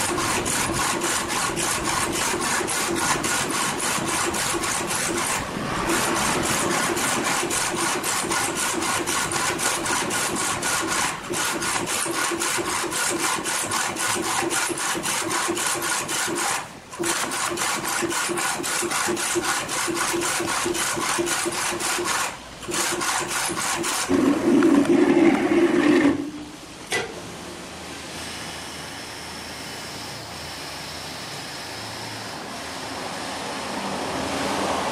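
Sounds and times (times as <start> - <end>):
printer rushing noise: 0.0 - 27.1.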